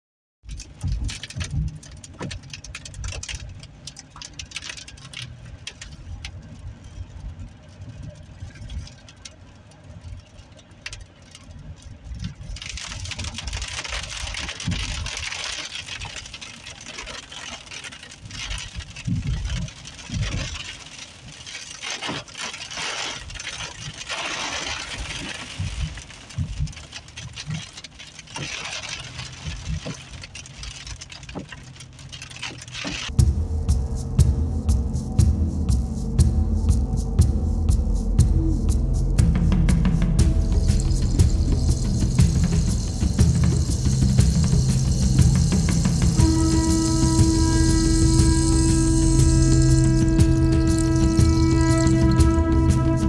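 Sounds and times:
rain pattering on car windshield: 0:00.4 - 0:35.4, 0:36.0 - 0:53.0
car driving on wet road: 0:00.5 - 0:53.0
heavy low thumps: 0:33.1 - 0:53.0.

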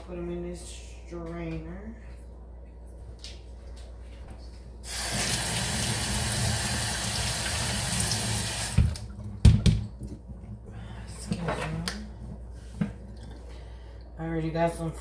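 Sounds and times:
tap water running: 0:04.8 - 0:09.2.

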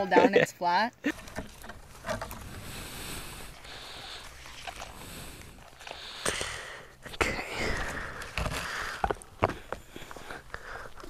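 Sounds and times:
nylon strap rustling and scraping: 0:01.1 - 0:06.5.

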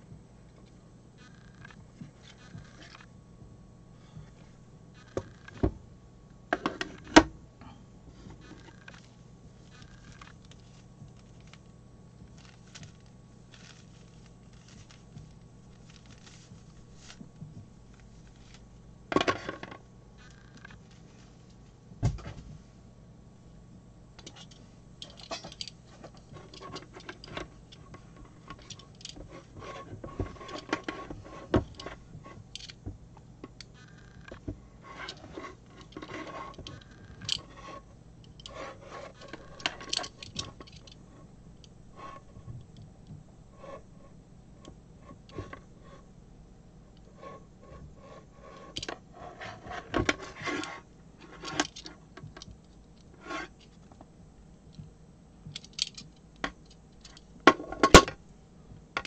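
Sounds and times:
cable stripper rubbing and scraping: 0:01.2 - 0:03.1, 0:08.3 - 0:21.6, 0:24.2 - 0:32.9, 0:33.6 - 0:46.1, 0:47.0 - 0:54.0.

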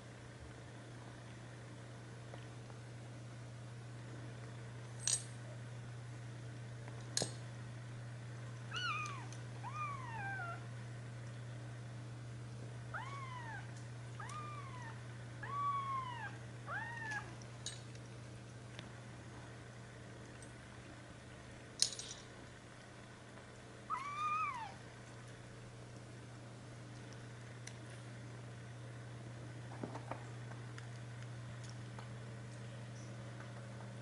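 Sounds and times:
steady low hum: 0:00.0 - 0:34.0
kittens mewing: 0:08.7 - 0:10.7, 0:12.9 - 0:17.4, 0:23.9 - 0:24.8.

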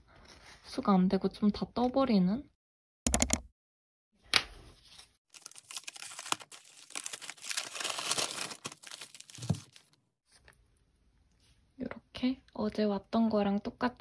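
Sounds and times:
paper envelope tearing and rustling: 0:04.9 - 0:10.0.

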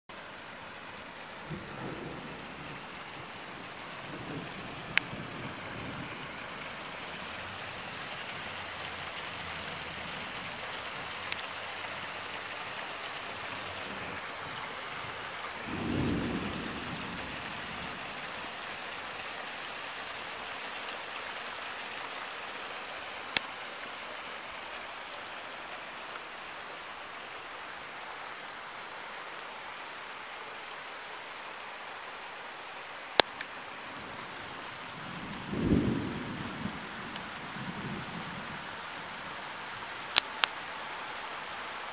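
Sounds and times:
steady hiss: 0:00.1 - 0:41.9
low rumble of thunder: 0:01.1 - 0:08.6, 0:13.2 - 0:18.8, 0:33.8 - 0:39.4.

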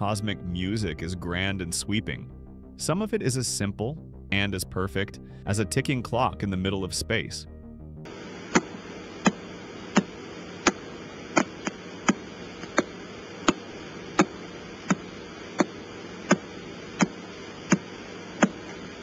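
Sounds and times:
static hiss: 0:08.1 - 0:19.0
sharp regular clicks: 0:08.5 - 0:19.0.

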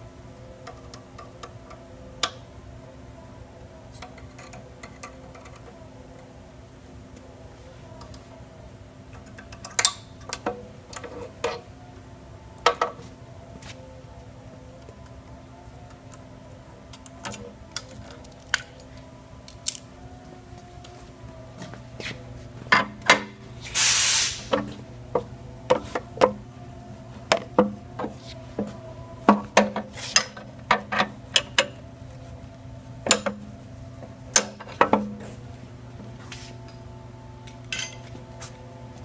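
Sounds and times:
steady low hum: 0:00.0 - 0:39.0
short hiss: 0:23.7 - 0:24.5.

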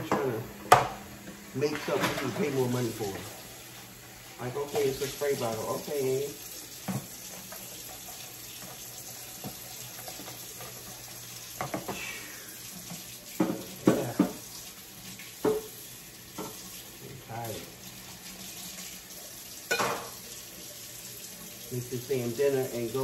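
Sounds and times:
faucet running into sink: 0:01.5 - 0:23.0
dishes clattering: 0:01.7 - 0:02.5, 0:13.4 - 0:14.4, 0:15.4 - 0:15.7, 0:19.7 - 0:20.2.

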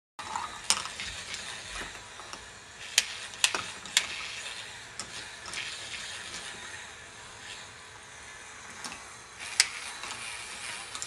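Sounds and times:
balls clacking on plastic track: 0:00.2 - 0:02.4.

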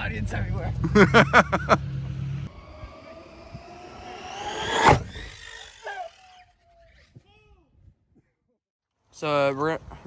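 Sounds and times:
electric motor whining: 0:02.1 - 0:07.2.

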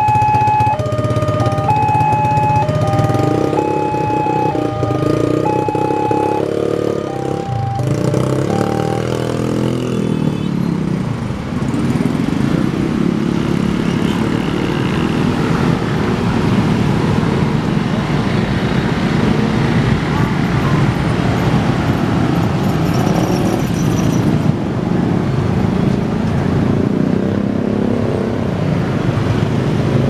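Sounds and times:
level crossing alarm tones: 0:00.0 - 0:09.4
motorcycles and cars pulling away: 0:00.0 - 0:30.0.

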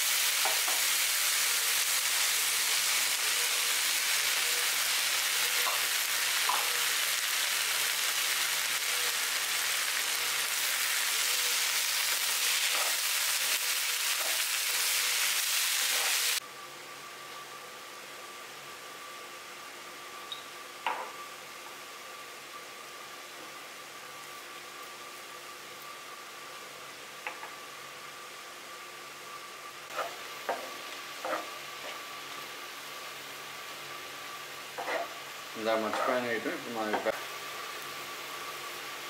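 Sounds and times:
vegetables sizzling in frying pan: 0:00.0 - 0:16.4, 0:18.4 - 0:39.0
spatula scraping pan: 0:29.9 - 0:32.0, 0:34.8 - 0:35.2, 0:35.8 - 0:36.3.

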